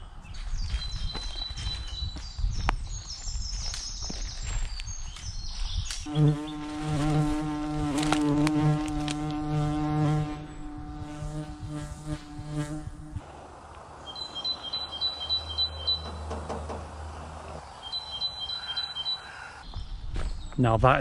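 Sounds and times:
birds chirping: 0.0 - 13.1, 13.8 - 21.0
flying insect buzzing: 6.1 - 13.2.

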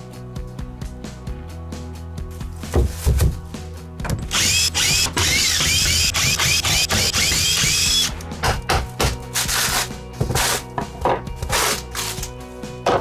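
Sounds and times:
power drill whining: 4.3 - 8.2.

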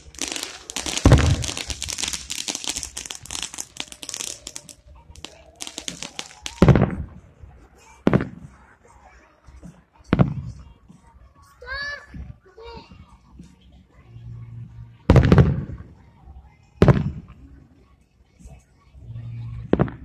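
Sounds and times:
firework booms: 0.0 - 4.6, 5.3 - 7.1
dense firework crackling: 0.0 - 7.2.

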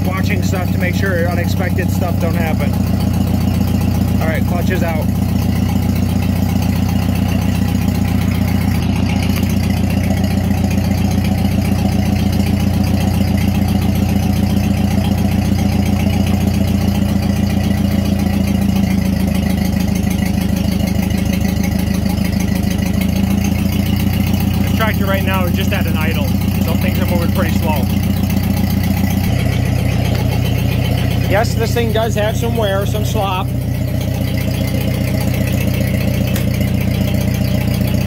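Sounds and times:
tractor engine idling: 0.0 - 38.0.

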